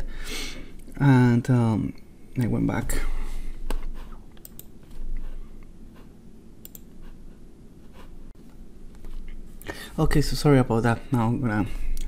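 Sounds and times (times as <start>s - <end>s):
low steady hum: 0.0s - 12.0s
keyboard and mouse clicks: 3.7s - 5.0s, 6.6s - 6.9s.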